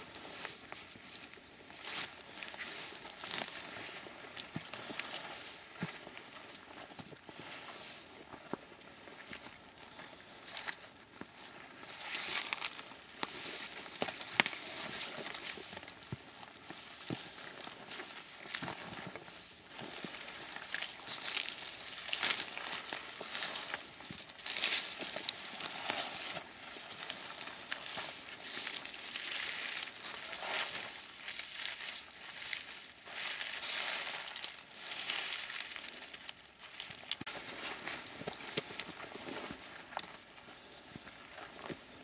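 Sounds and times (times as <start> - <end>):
footsteps through dry scrub: 0.0 - 42.0
branches brushing clothing: 11.9 - 40.3.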